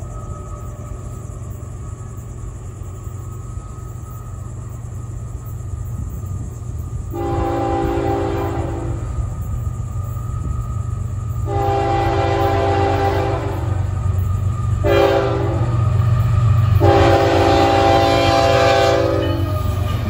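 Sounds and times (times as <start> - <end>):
low train rumble: 0.0 - 20.0
locomotive air horn chord: 7.1 - 9.2, 11.4 - 13.8, 14.8 - 15.8, 16.8 - 20.0.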